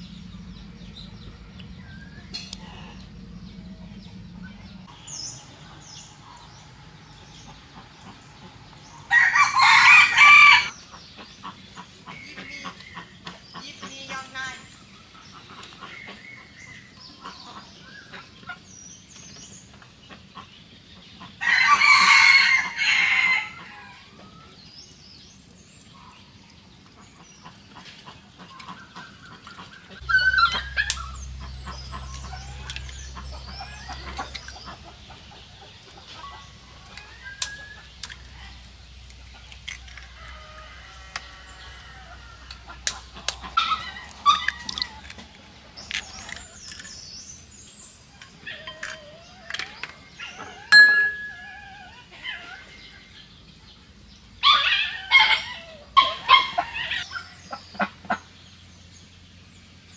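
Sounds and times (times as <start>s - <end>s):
rooster crowing: 9.1s - 10.7s, 21.4s - 24.0s.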